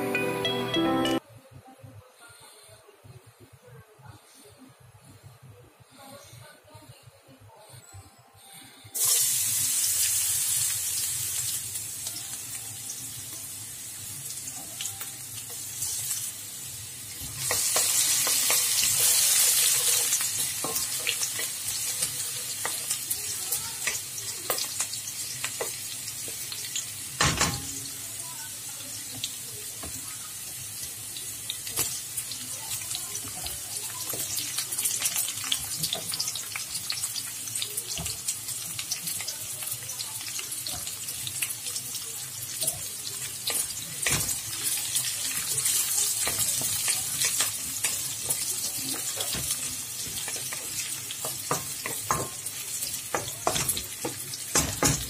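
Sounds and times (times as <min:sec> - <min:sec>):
garlic sizzling in hot oil: 0:09.0 - 0:55.0
spatula scraping and tapping wok: 0:17.2 - 0:23.0, 0:45.6 - 0:55.0.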